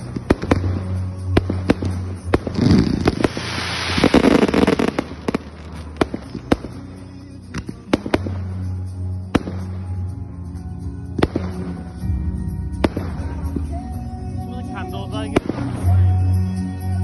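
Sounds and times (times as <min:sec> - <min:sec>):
firework shells bursting: 0:00.0 - 0:08.7
rushing hiss: 0:01.6 - 0:07.1.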